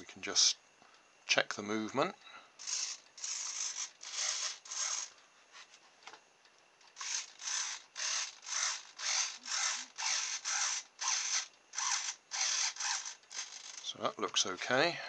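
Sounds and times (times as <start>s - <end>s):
servo motor whirring: 2.6s - 5.1s, 7.0s - 13.9s.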